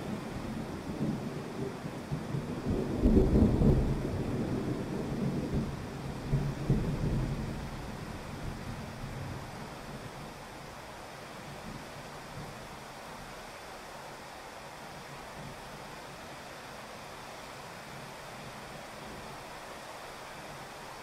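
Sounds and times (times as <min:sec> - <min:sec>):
thunder rumbling: 0:00.0 - 0:09.5
heavy rain on a wet street: 0:00.0 - 0:21.0.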